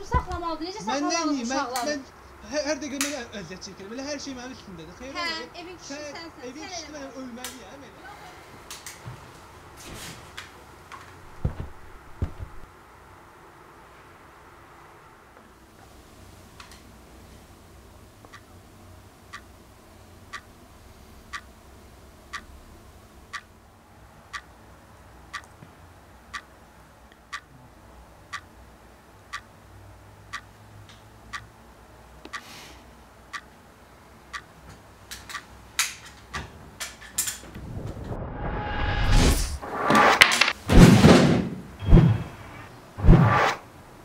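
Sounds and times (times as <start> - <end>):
wall clock ticking: 18.3 - 18.5, 19.3 - 19.5, 20.3 - 20.5, 21.3 - 21.5, 22.3 - 22.5, 24.3 - 24.5, 25.3 - 25.5, 26.3 - 26.5, 27.3 - 27.5, 28.3 - 28.5, 30.3 - 30.6, 31.3 - 31.5, 32.3 - 32.5, 33.3 - 33.6, 34.3 - 34.6, 35.3 - 35.5.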